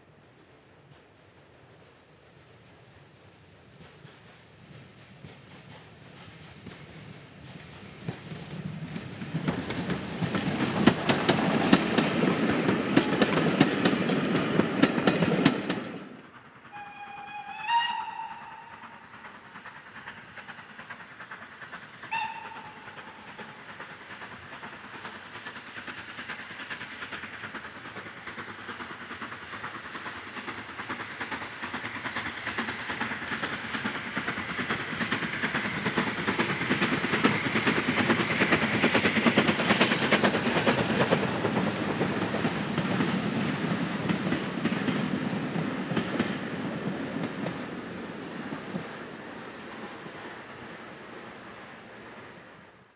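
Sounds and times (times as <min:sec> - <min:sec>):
steam train approaching: 0:00.0 - 0:52.9
train wheels clicking on rails: 0:00.0 - 0:52.9
steam whistle: 0:16.7 - 0:19.0, 0:22.1 - 0:23.0.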